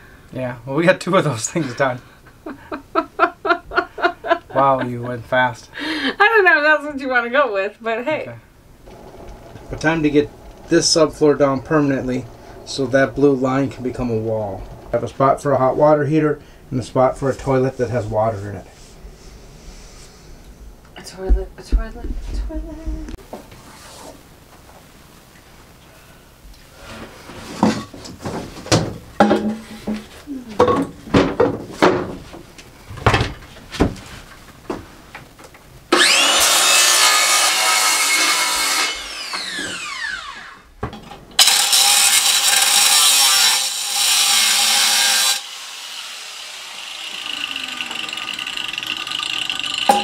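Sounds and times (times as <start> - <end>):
steady high whine: 8.8 - 20.9
circular saw cutting plywood: 8.9 - 15.0, 35.9 - 40.7, 41.4 - 50.0.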